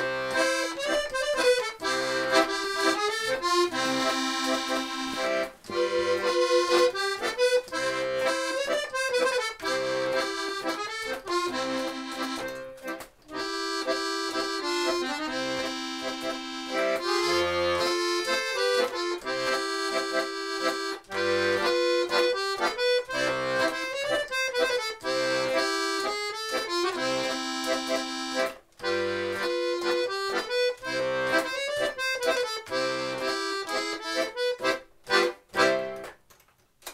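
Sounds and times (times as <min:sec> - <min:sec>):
accordion playing folk melody: 0:00.0 - 0:36.2.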